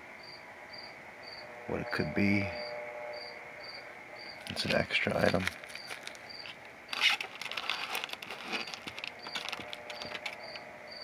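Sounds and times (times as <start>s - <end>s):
crickets chirping: 0.2s - 11.0s
styrofoam and plastic rustling: 4.4s - 10.6s.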